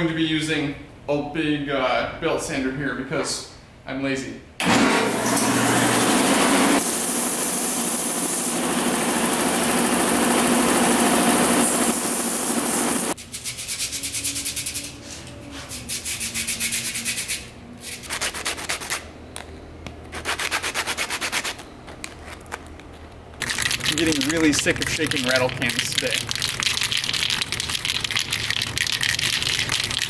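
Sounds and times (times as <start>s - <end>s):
hand sanding strokes: 12.0s - 19.0s, 20.1s - 21.6s.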